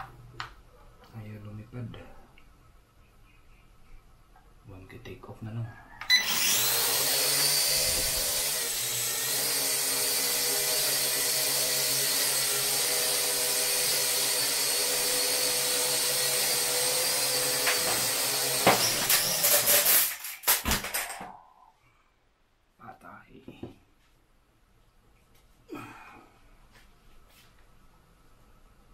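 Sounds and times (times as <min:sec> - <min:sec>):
drone motors whining: 0:06.1 - 0:19.8.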